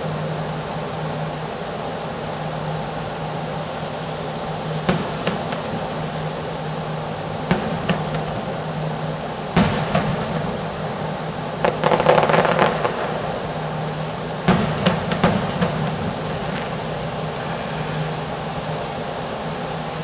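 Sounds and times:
low hum: 0.0s - 20.0s
firework crackling: 2.0s - 20.0s
firework booms: 7.5s - 8.5s, 9.6s - 13.4s, 14.4s - 16.8s.

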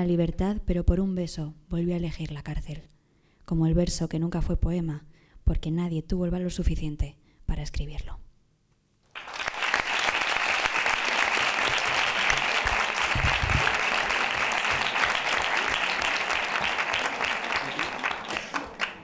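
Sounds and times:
audience applause: 9.1s - 19.0s.

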